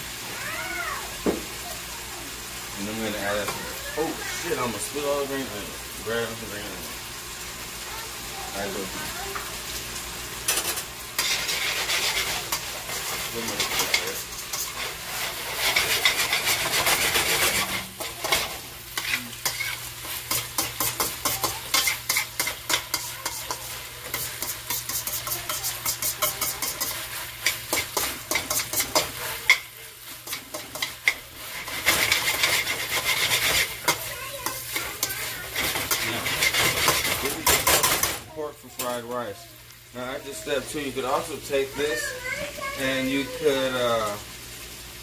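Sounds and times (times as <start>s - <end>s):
meat sizzling in a pan: 0.0s - 45.0s
utensil scraping and clicking on pan: 10.5s - 38.2s.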